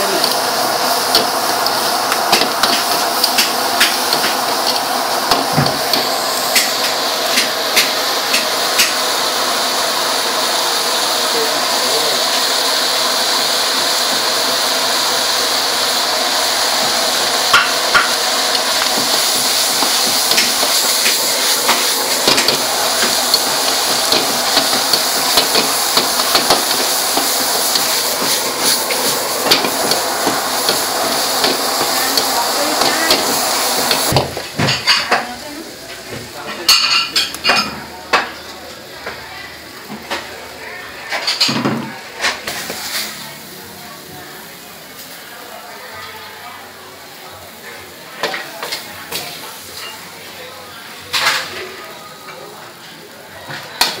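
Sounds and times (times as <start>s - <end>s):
stir-frying sizzle in a wok: 0.0s - 54.0s.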